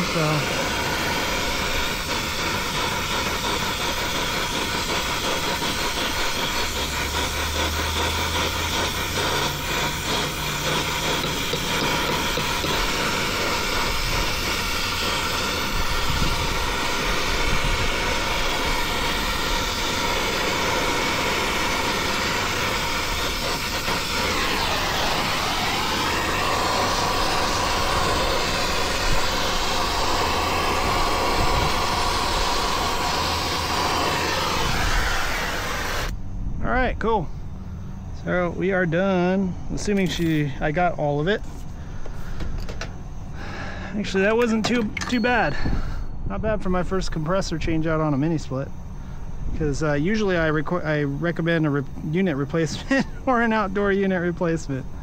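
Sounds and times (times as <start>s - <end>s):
brazing torch flame hissing: 0.0s - 36.3s, 37.0s - 55.0s
machinery hum: 0.0s - 55.0s.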